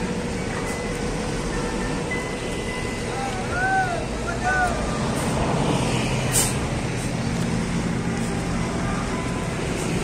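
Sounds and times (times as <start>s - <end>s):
diesel engine idling: 0.0s - 10.0s
short hiss: 6.3s - 6.6s.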